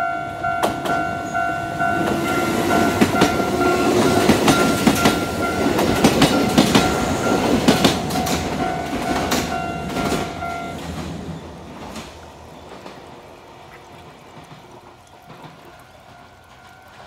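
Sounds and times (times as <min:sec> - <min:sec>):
level crossing bell ringing: 0:00.0 - 0:10.9
train wheels clacking: 0:00.0 - 0:17.0.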